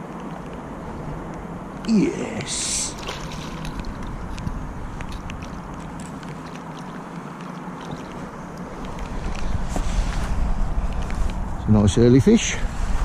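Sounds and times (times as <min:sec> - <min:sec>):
wind rumbling on microphone: 0:00.0 - 0:13.0
light water sounds: 0:01.8 - 0:11.2.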